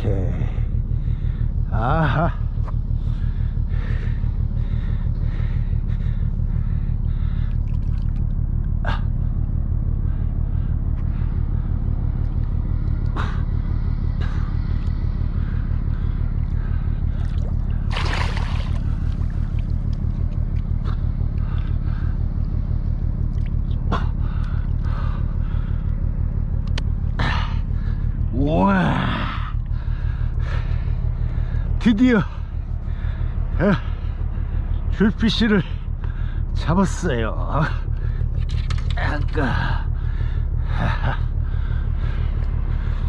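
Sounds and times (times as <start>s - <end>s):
steady low rumble: 0.0s - 43.0s
rush of water: 17.9s - 18.8s.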